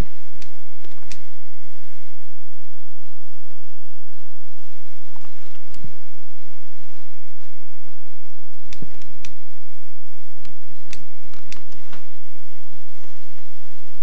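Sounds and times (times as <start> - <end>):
steady hiss with faint hum: 0.0 - 14.0
sharp clicks: 0.4 - 1.3, 8.7 - 9.4, 10.4 - 12.1.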